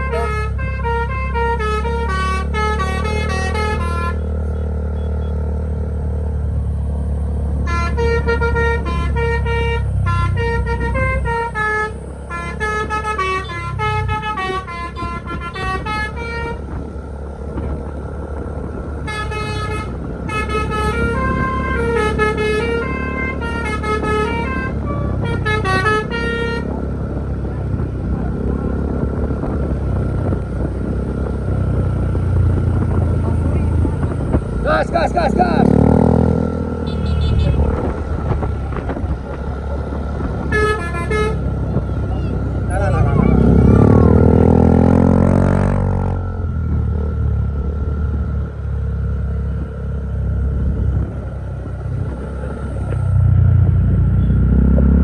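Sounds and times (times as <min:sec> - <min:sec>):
bus multi-tone horn melody: 0:00.0 - 0:05.3, 0:07.5 - 0:16.8, 0:19.0 - 0:27.0, 0:35.6 - 0:37.8, 0:40.3 - 0:42.1
low engine and road rumble: 0:00.0 - 0:55.0.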